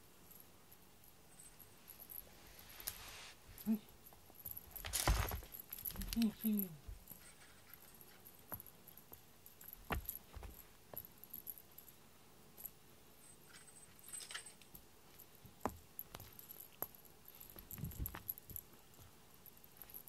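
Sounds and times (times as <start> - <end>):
collar tag clinking: 0.0 - 20.0
small taps and soft bumps: 8.4 - 11.1, 15.4 - 19.2.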